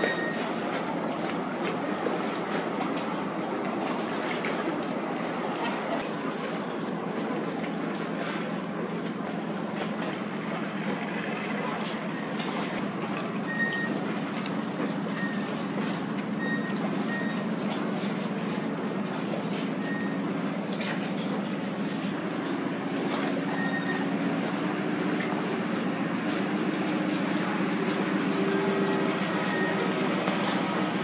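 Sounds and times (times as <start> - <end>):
high warning beeps: 0.0 - 0.4, 13.5 - 14.0, 16.4 - 17.5, 19.8 - 20.2, 23.5 - 24.0, 29.4 - 29.8
low rumble of engines: 0.0 - 31.0.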